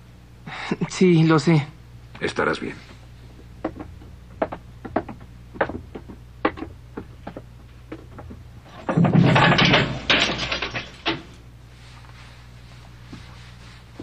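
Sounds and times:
footsteps: 0:02.8 - 0:09.2, 0:11.7 - 0:14.0.

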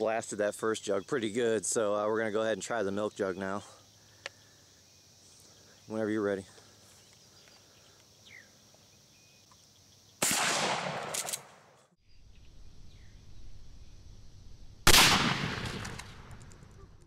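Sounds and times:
shotgun shot: 0:10.2 - 0:11.7, 0:14.8 - 0:16.6.

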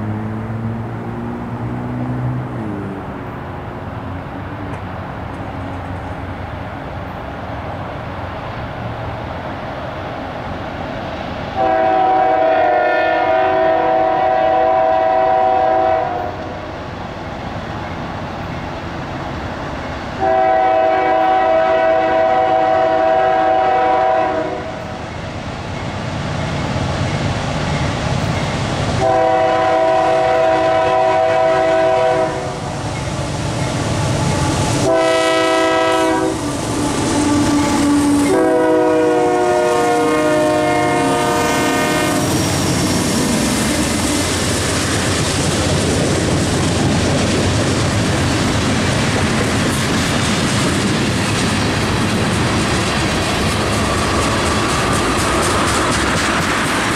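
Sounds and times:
diesel train rumbling: 0:00.0 - 0:56.9
locomotive air horn blasts: 0:11.6 - 0:16.6, 0:20.2 - 0:24.9, 0:29.0 - 0:32.6, 0:34.8 - 0:42.4.

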